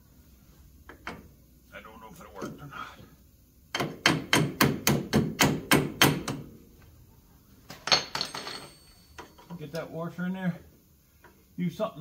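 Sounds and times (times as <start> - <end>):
hammer striking metal bolt: 3.7 - 6.4
metallic clink ringing: 7.9 - 9.6.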